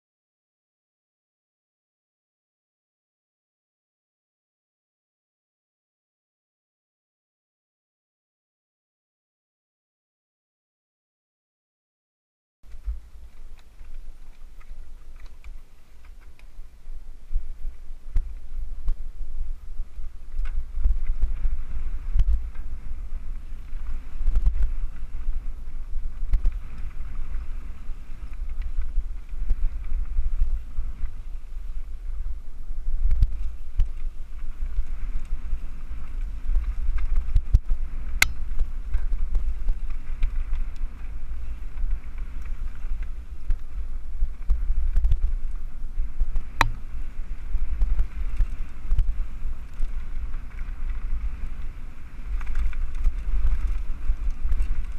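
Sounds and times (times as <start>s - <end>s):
wind buffeting microphone: 12.6s - 54.9s
bike clicks: 33.0s - 45.7s, 46.3s - 54.9s.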